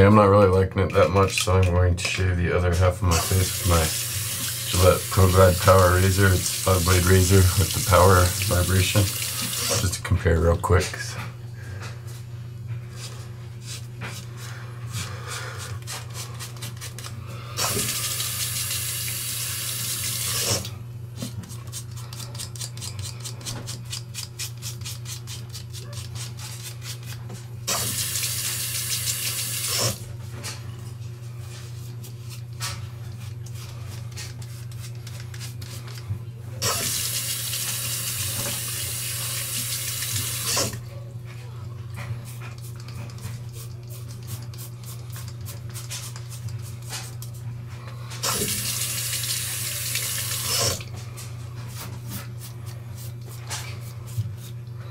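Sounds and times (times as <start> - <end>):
water tap running at sink: 3.1 - 10.0, 17.6 - 20.7, 27.7 - 30.0, 36.6 - 40.8, 48.2 - 50.9
electric razor humming: 3.2 - 9.8, 36.6 - 40.8, 48.2 - 50.8
razor blades scraping stubble: 21.4 - 27.2.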